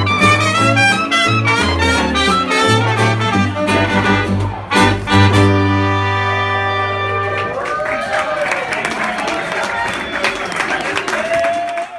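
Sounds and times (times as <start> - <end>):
jazz band playing: 0.0 - 7.6.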